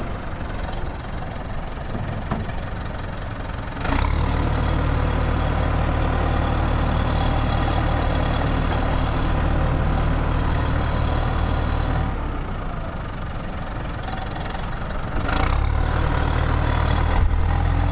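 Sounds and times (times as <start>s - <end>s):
tractor diesel engine running: 0.0s - 17.9s.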